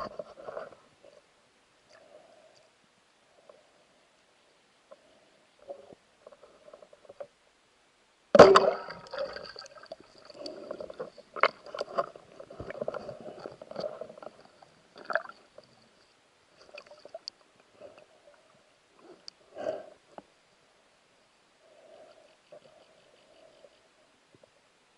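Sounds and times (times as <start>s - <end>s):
speargun shot crack: 8.4s - 9.0s.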